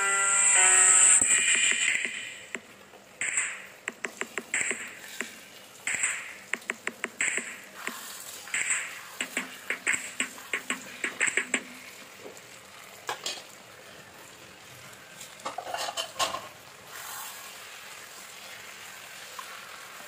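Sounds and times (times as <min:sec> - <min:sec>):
frying sizzle: 0:00.3 - 0:06.6, 0:07.6 - 0:20.0
metal utensils scraping a wok: 0:15.5 - 0:16.4.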